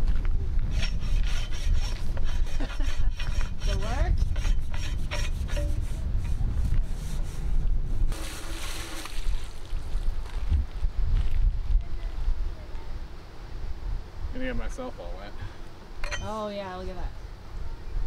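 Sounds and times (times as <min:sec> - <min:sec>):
wind rumble on microphone: 0:00.0 - 0:14.8
brush scrubbing inside steel pipe: 0:00.7 - 0:09.0
garden hose spraying water: 0:08.1 - 0:10.1.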